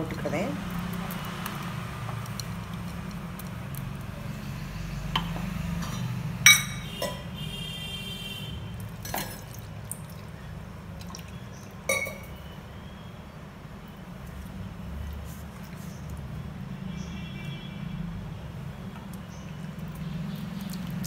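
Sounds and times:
spoon clinking on steel: 11.9 - 12.3.

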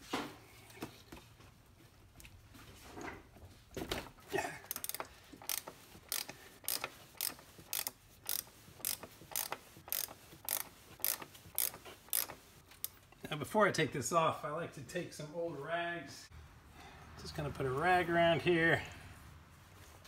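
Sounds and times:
ratchet clicking: 4.7 - 13.0.

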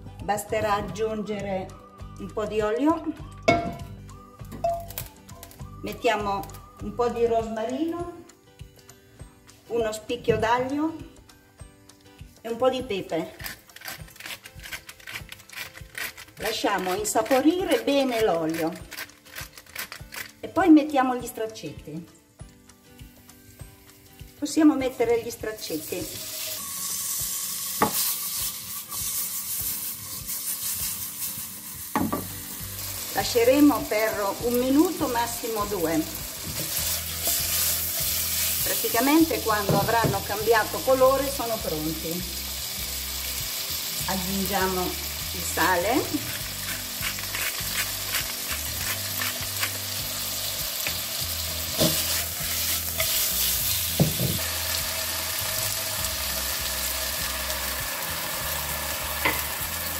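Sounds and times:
chicken sizzling in a frying pan: 24.2 - 59.9.

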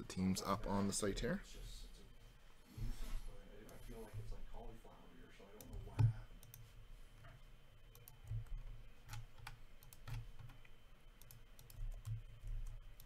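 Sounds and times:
typing on computer keyboard: 9.1 - 13.0.

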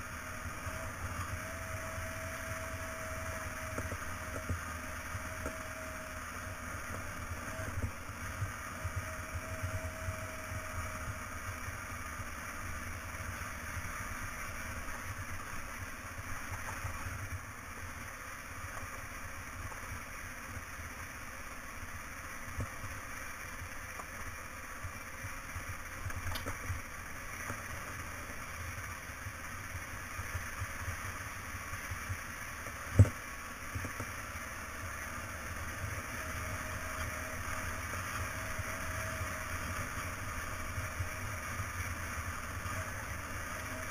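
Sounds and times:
motorcycle engine and road noise: 0.0 - 43.9.

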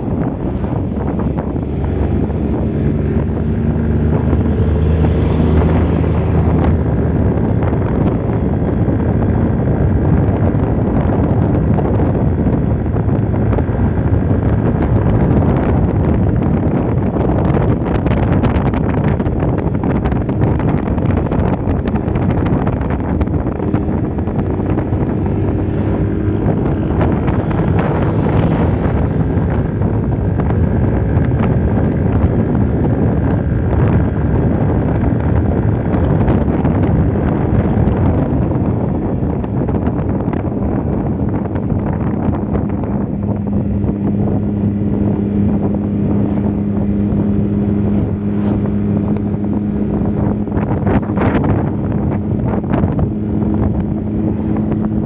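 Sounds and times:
scooter engine running: 0.0 - 55.0
wind rushing over microphone: 0.0 - 55.0.

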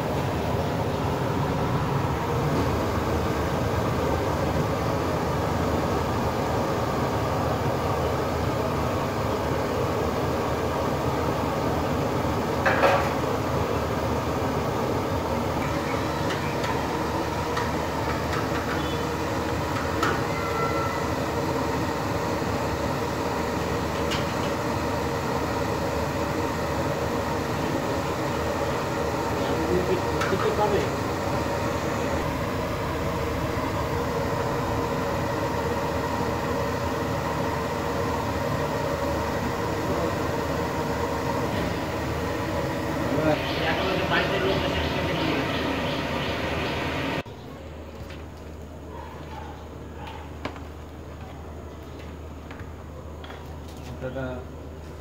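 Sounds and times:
steady rumbling noise: 38.4 - 47.3
faint steady tones: 41.8 - 47.2.

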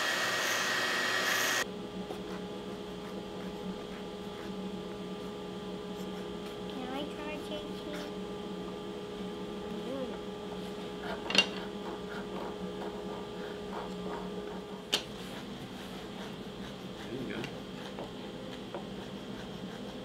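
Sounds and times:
steady hum: 0.0 - 20.0
files rasping on wood: 15.3 - 20.0.

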